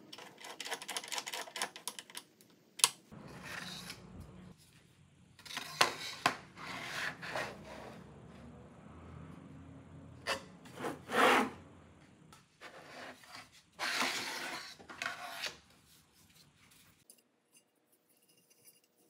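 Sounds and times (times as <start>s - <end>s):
metal square scraping on wood: 3.2s - 4.0s, 5.4s - 8.0s, 10.2s - 11.6s, 12.6s - 15.6s.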